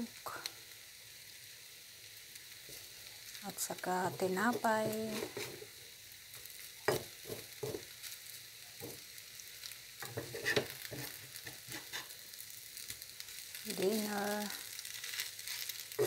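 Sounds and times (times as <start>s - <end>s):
food sizzling in frying pan: 0.0s - 16.0s
spatula scraping pan: 4.1s - 5.7s, 10.0s - 12.2s.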